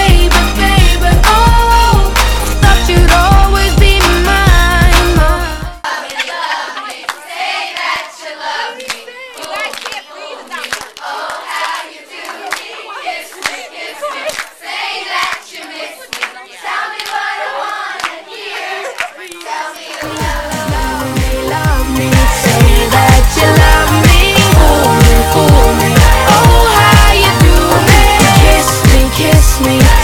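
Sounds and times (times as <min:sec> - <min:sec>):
crowd clapping: 0:05.8 - 0:08.1, 0:08.8 - 0:30.0.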